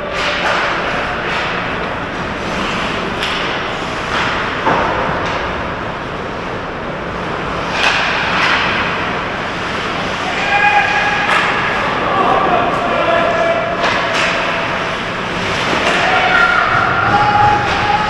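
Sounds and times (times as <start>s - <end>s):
hockey sticks and puck knocking: 0.1s - 5.6s, 7.6s - 9.7s, 10.3s - 12.0s, 13.7s - 18.0s
skates scraping on ice: 0.2s - 5.4s, 7.2s - 18.0s.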